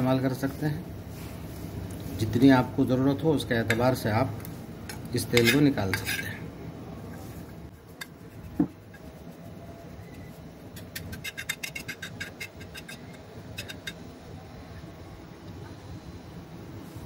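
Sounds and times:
spoon scraping frying pan: 4.9 - 6.5, 10.7 - 14.0.

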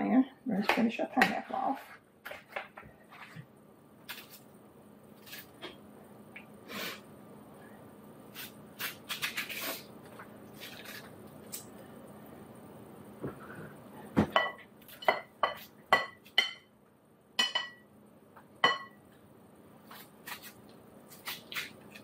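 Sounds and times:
knife cutting pineapple: 4.1 - 4.4, 8.3 - 9.9, 10.6 - 11.7, 19.8 - 22.0.

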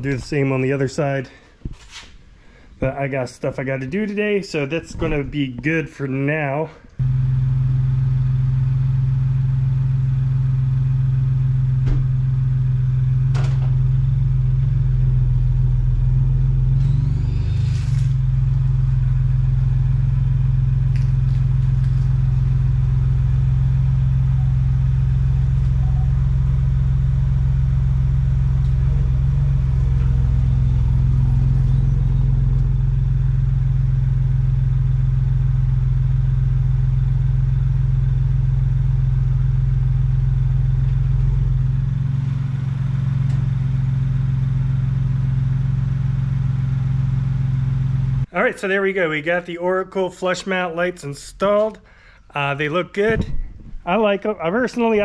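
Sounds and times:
car engine idling: 6.9 - 48.3.

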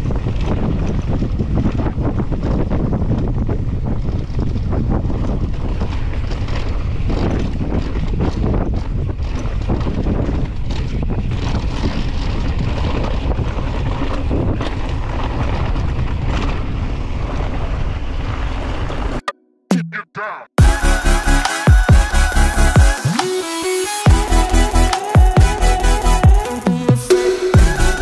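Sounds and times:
bike knocks and rattles: 0.0 - 17.6
wind buffeting microphone: 0.0 - 19.2.

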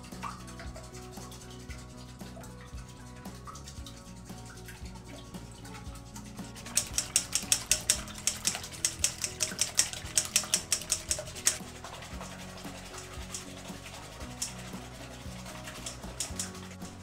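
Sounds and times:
background music: 0.0 - 17.0
whisk clicking against metal bowl: 5.8 - 17.0.

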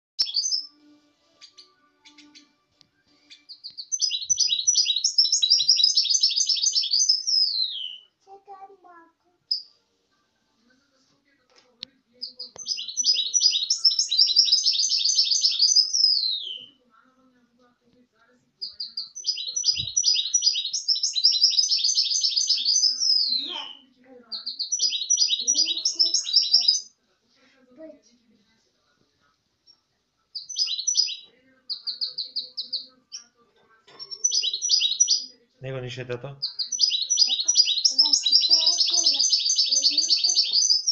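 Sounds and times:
bird twittering song: 0.2 - 0.8, 1.4 - 2.6, 3.2 - 8.1, 9.5 - 9.8, 12.2 - 16.8, 18.6 - 26.9, 30.4 - 33.3, 33.9 - 40.9
finch singing high chirps: 0.2 - 2.6, 3.2 - 8.1, 12.2 - 16.8, 18.6 - 26.9, 30.4 - 33.3, 33.9 - 35.3, 36.4 - 40.9.

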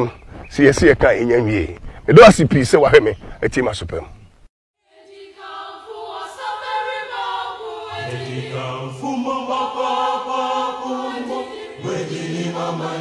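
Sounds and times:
choir singing held chords: 4.8 - 13.0.

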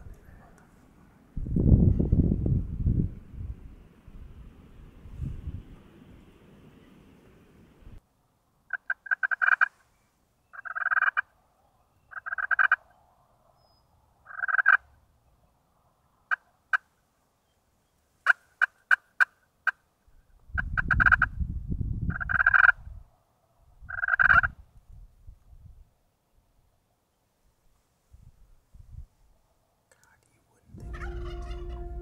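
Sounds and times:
low rumble on microphone: 1.3 - 6.6, 30.6 - 32.0
turkey rattling calls: 8.7 - 9.7, 10.5 - 11.3, 12.1 - 12.8, 14.3 - 14.8, 23.9 - 24.5, 30.8 - 32.0.

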